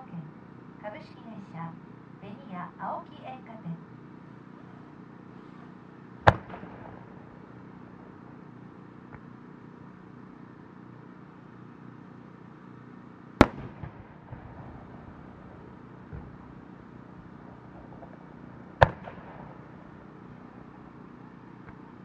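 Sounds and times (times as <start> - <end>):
small firework pops: 6.2 - 7.1, 13.4 - 14.1, 16.1 - 16.4, 17.7 - 19.7
firework booms: 6.2 - 7.6, 13.4 - 20.7.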